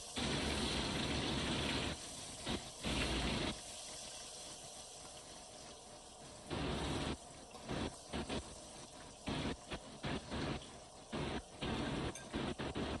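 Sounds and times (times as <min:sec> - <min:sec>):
fish sizzling in hot oil: 0:00.0 - 0:13.0.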